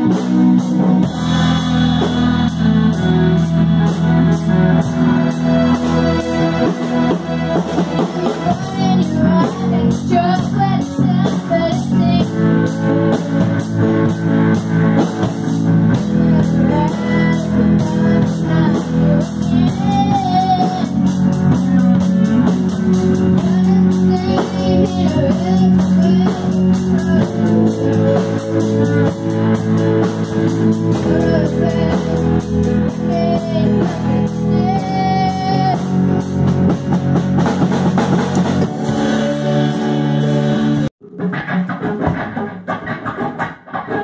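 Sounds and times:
drum kit beat: 0.0s - 44.0s
electric guitar chords: 0.0s - 44.0s
electronic keyboard: 0.0s - 44.0s
girl singing: 1.0s - 14.2s, 15.2s - 29.2s, 30.9s - 36.2s.

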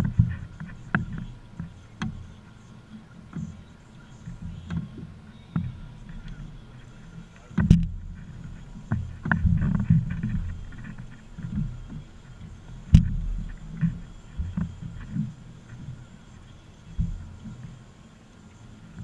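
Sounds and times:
low uneven rumble: 0.0s - 19.0s
knocks on aluminium boat: 7.6s - 8.2s, 12.8s - 15.3s.

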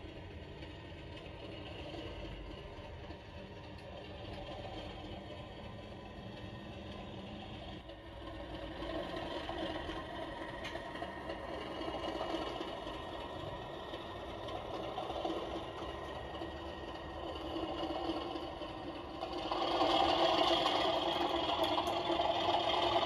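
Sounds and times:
diesel engine sound from small speaker: 0.0s - 23.0s
model train whirr and rattle: 0.0s - 23.0s.

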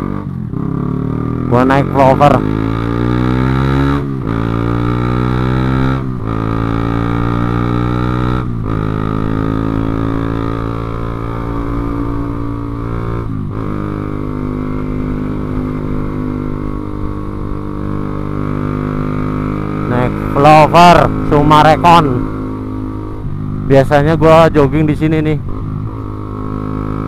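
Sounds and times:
motorcycle engine accelerating: 0.0s - 27.0s.

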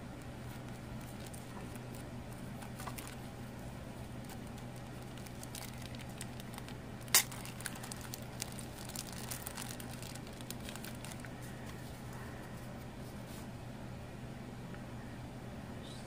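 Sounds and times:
plastic bag crinkling: 0.5s - 3.3s, 4.0s - 11.9s.

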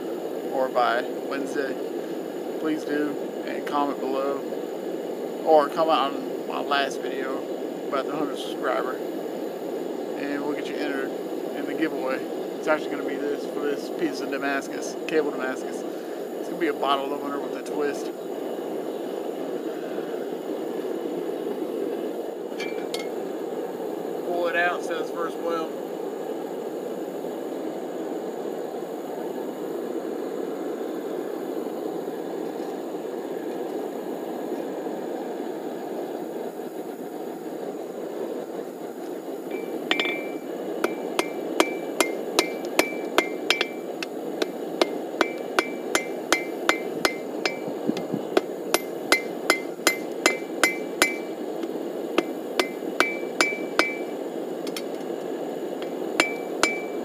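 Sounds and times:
hammer striking steel on anvil: 22.6s - 23.1s, 39.5s - 51.3s, 52.2s - 54.8s, 56.2s - 57.0s
steady low rushing noise: 36.9s - 54.7s.

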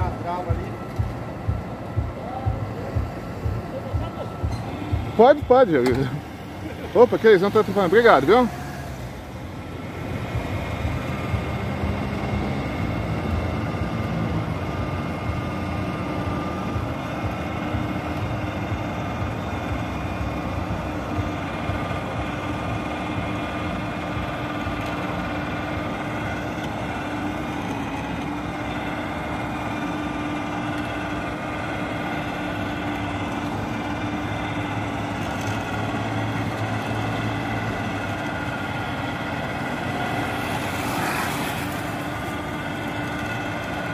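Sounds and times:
electric winch droning and whining: 0.0s - 43.9s.

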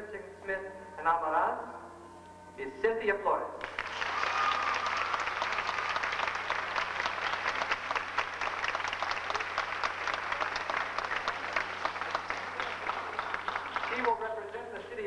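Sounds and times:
audience applauding: 3.6s - 14.5s.

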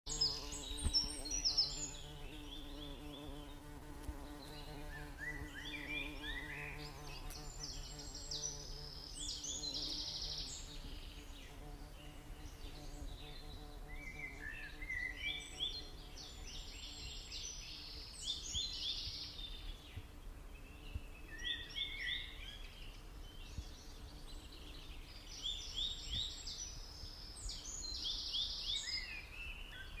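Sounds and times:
birds chirping: 0.1s - 30.0s.

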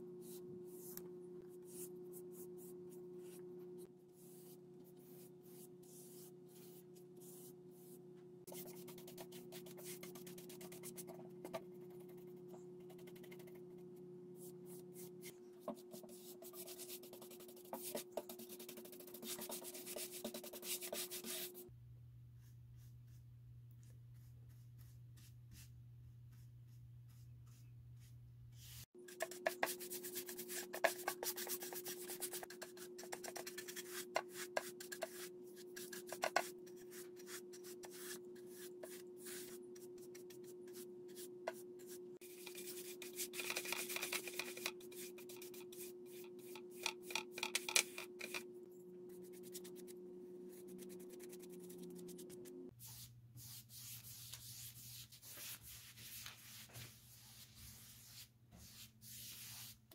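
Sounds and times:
faint steady hum: 0.0s - 58.7s
paintbrush scratching on wood: 50.5s - 59.8s.

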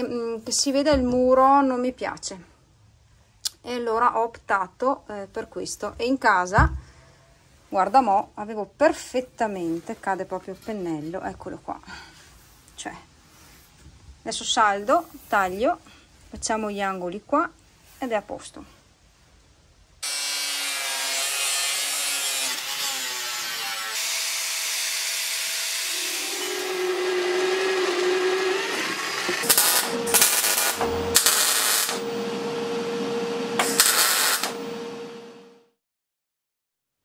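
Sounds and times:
drilling through steel plate: 20.0s - 35.0s
angle grinder cutting steel: 20.0s - 35.3s
drill press humming: 25.8s - 35.6s.

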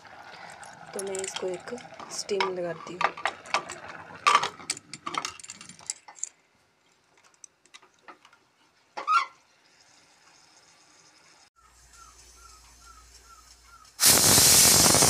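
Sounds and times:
gas burner igniting: 0.0s - 4.9s, 12.0s - 15.0s
gas flame hissing: 12.0s - 15.0s.

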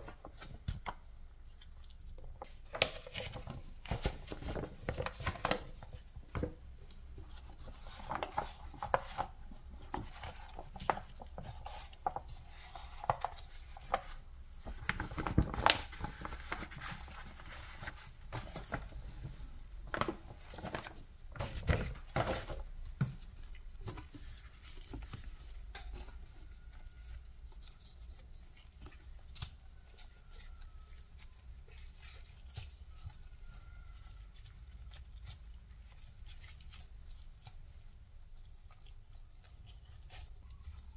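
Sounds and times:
baking paper rustling: 0.0s - 40.9s.

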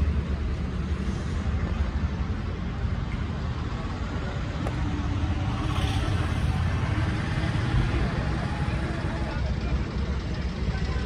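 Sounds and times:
road traffic noise: 0.0s - 11.0s.

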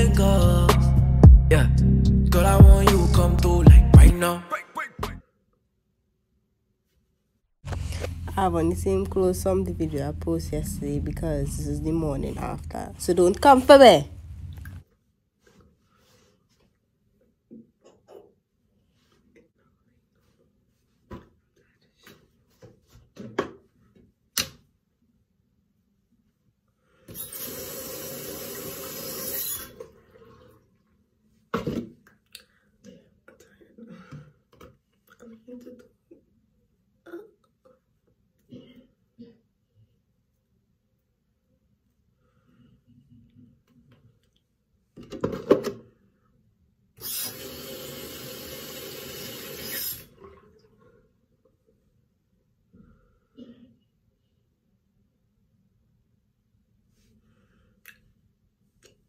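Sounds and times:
sink tap running: 27.2s - 29.8s, 47.0s - 50.1s.

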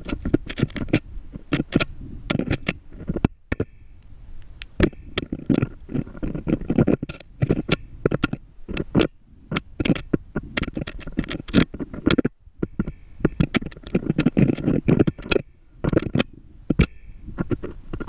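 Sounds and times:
rumbling scrape: 0.0s - 3.7s, 4.8s - 18.0s
camera knocking against rock: 4.8s - 18.0s.

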